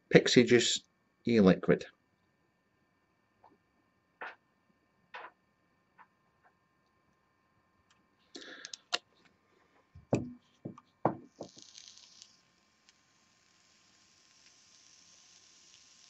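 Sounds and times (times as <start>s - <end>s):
sharp clicks and knocks: 10.0s - 11.6s
soft vaporising hiss: 11.0s - 16.0s.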